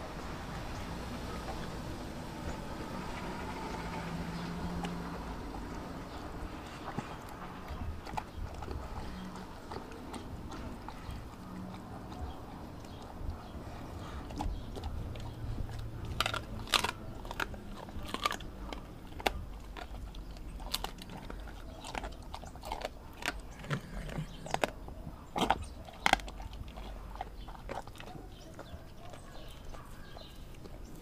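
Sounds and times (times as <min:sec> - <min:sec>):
dog chewing and crunching meat: 0:00.0 - 0:31.0.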